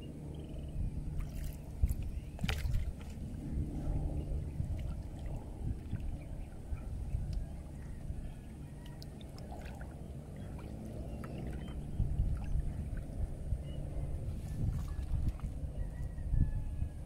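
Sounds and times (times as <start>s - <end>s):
steady low rumble: 0.0s - 17.0s
paddle strokes through water: 1.1s - 4.0s, 4.6s - 13.5s, 14.2s - 15.8s.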